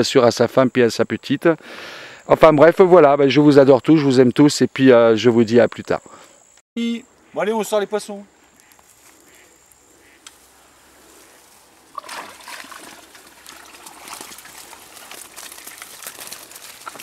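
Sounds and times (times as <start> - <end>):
water splashing through mesh net: 11.9 - 17.0.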